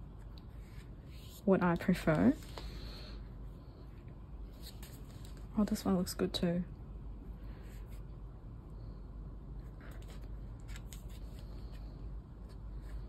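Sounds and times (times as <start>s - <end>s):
low room hum: 0.0s - 13.0s
paper rustling: 9.8s - 13.0s.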